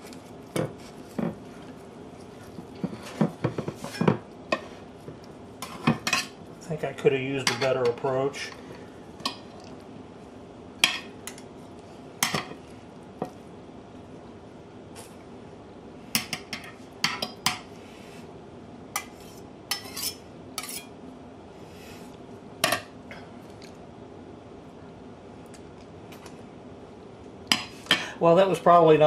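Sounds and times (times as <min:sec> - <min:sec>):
faint steady hum: 0:00.0 - 0:29.0
knife and spatula scraping plate: 0:19.0 - 0:20.9.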